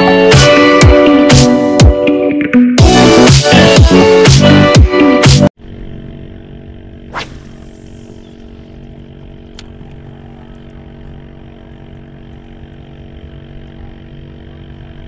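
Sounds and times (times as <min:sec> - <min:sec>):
low hum: 0:05.6 - 0:15.0
line zipping off reel: 0:07.0 - 0:09.8
fishing rod swish: 0:07.1 - 0:08.3.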